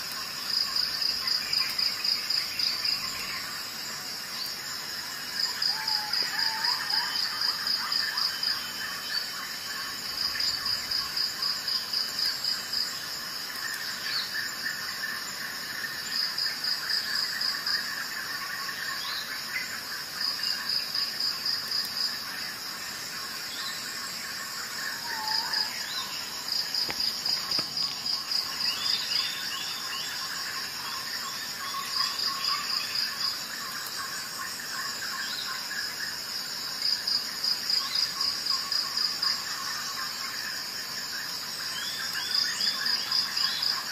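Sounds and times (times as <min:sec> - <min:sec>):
insect chirping: 0:00.0 - 0:43.9.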